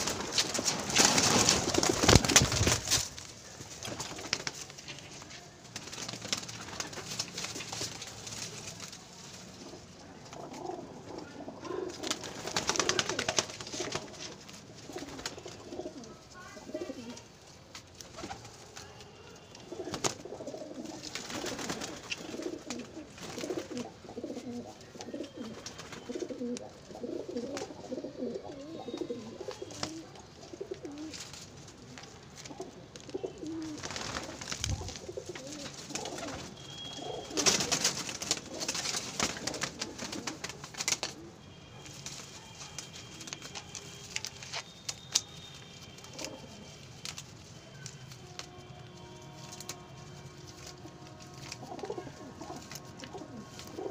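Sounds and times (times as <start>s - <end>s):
rustling bursts: 0.0s - 9.7s, 19.5s - 27.7s, 30.6s - 53.9s
pigeons cooing: 9.7s - 17.2s, 19.7s - 31.2s, 32.4s - 41.4s, 50.9s - 53.9s.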